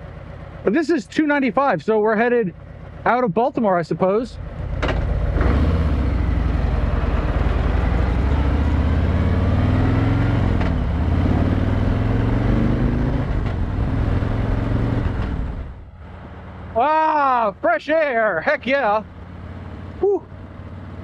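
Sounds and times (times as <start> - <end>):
motorcycle engine accelerating: 4.3 - 17.4, 18.6 - 21.0.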